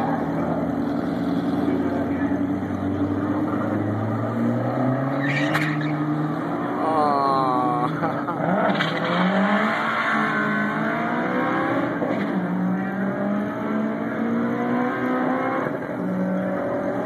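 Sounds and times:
race car engines idling: 0.0s - 9.0s
engine revving up: 0.0s - 17.0s.

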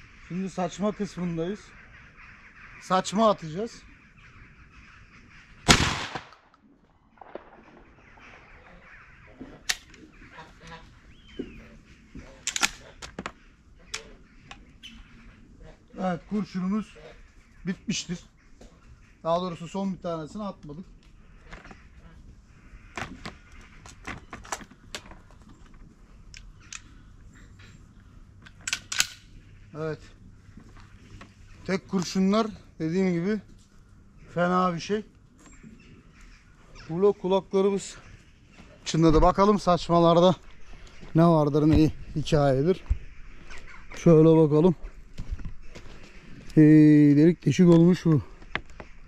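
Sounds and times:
shotgun shot: 5.6s - 6.5s, 7.2s - 8.5s
sharp crack: 5.6s - 9.0s
shotgun metallic clicks: 5.7s - 6.6s, 7.2s - 7.8s, 9.7s - 10.0s, 12.4s - 13.2s, 26.3s - 26.9s, 28.4s - 29.4s.

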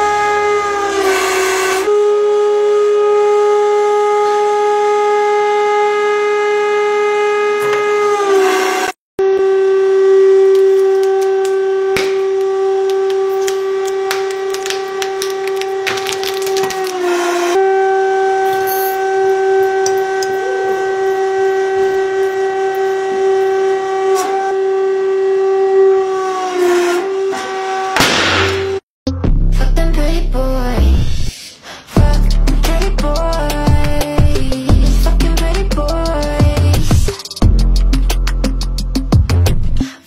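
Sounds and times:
plastic cracking and snapping: 12.9s - 17.0s.

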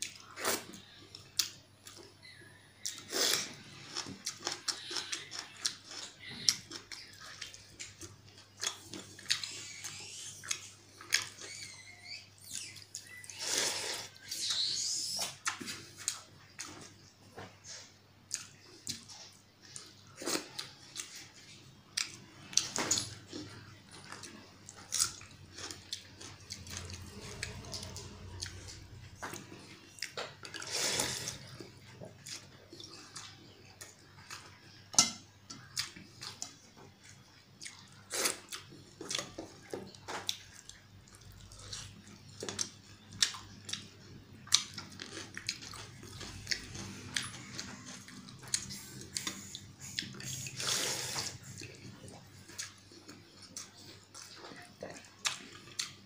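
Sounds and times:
eating smacks and clicks: 35.5s - 56.0s.

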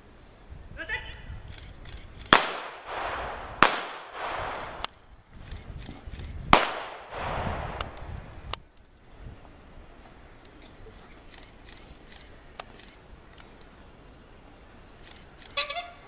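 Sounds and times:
pistol shots echoing: 2.3s - 5.0s, 6.5s - 8.0s.

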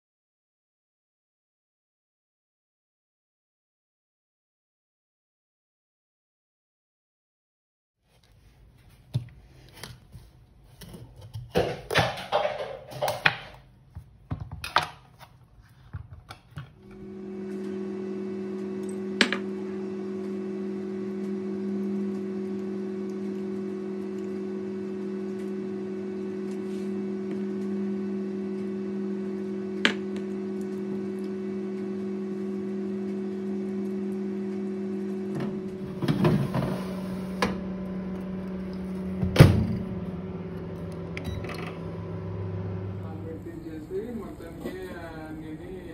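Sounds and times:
microwave oven humming: 16.7s - 45.9s.

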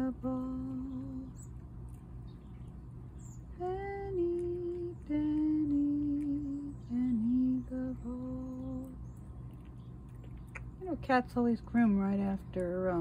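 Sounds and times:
woman humming a slow tune: 3.6s - 9.0s.

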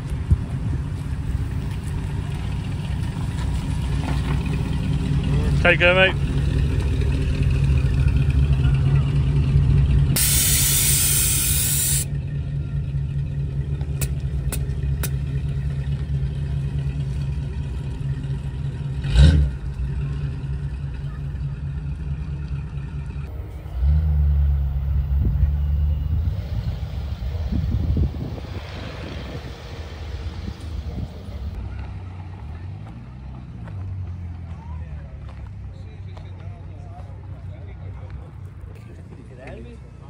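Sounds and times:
car engine low rumble: 0.0s - 40.0s
brief hiss: 10.2s - 12.1s.

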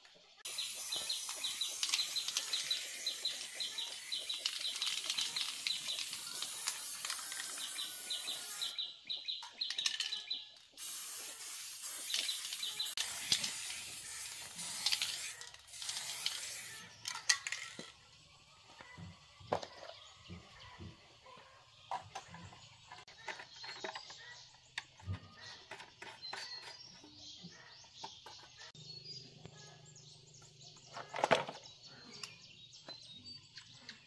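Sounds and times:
spray paint can hissing: 0.4s - 8.8s, 10.8s - 17.8s.

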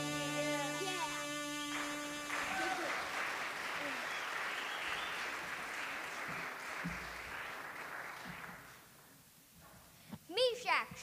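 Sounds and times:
audience applauding: 1.2s - 8.9s.

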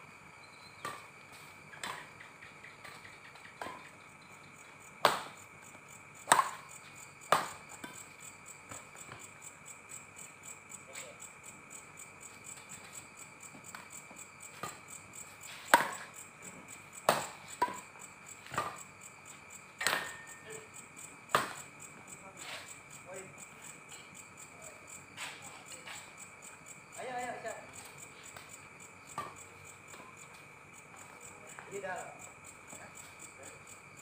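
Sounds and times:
night insects chirring: 0.0s - 34.0s
rackets hitting shuttlecock: 5.0s - 5.3s, 6.2s - 6.6s, 7.3s - 8.0s, 15.7s - 16.1s, 17.0s - 17.9s, 19.8s - 20.4s, 21.3s - 21.6s.

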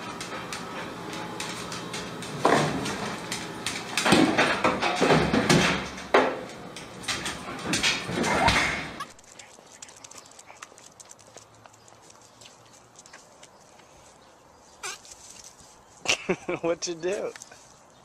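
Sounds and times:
oven door banging on hinges: 1.4s - 9.0s.

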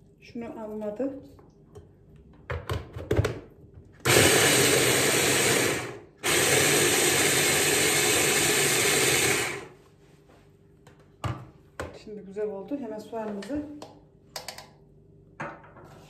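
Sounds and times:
hand blender motor running: 4.1s - 9.7s.

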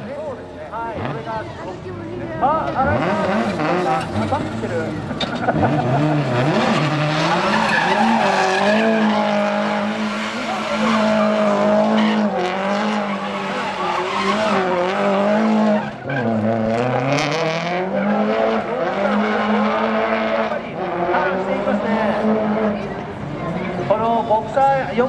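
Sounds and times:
car engine at high revs: 0.0s - 24.0s
tyres spinning on tarmac: 3.0s - 16.4s.

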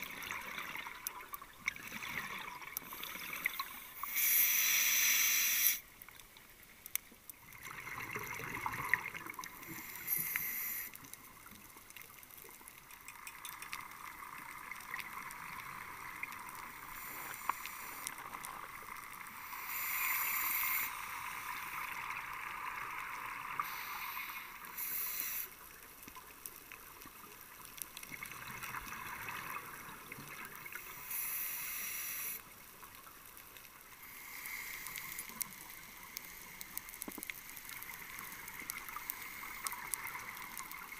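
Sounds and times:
scuba regulator hiss: 3.8s - 5.9s, 9.6s - 11.0s, 16.9s - 18.4s, 19.3s - 21.8s, 23.6s - 25.6s, 30.8s - 32.4s, 34.0s - 36.6s, 39.0s - 40.3s.

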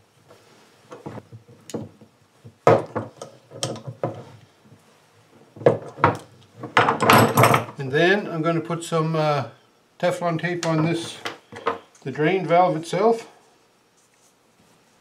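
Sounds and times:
metal tools knocking on table: 5.6s - 7.8s.

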